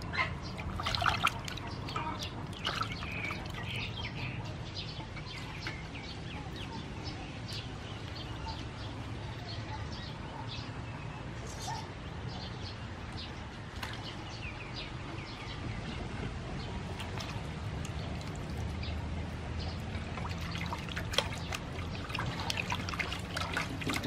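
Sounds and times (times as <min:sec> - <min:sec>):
small birds chirping: 0:00.0 - 0:24.0
water splashing in metal basin: 0:00.4 - 0:04.2, 0:16.8 - 0:19.0, 0:19.6 - 0:24.0.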